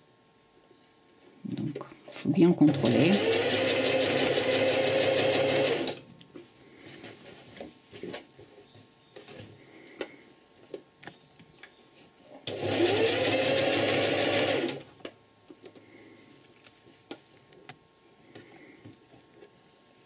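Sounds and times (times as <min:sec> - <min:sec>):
sewing machine stitching: 0:02.7 - 0:06.0, 0:12.5 - 0:14.8.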